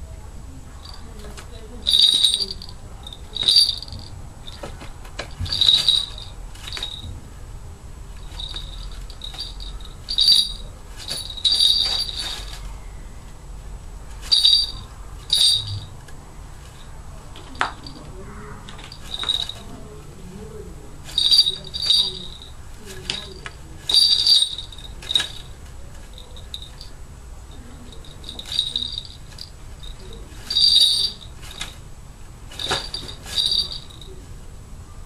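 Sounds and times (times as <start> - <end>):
small bells jingling: 0.8 - 7.1, 8.2 - 12.7, 14.2 - 16.0, 16.7 - 18.1, 18.7 - 19.9, 21.0 - 31.9, 32.5 - 34.2.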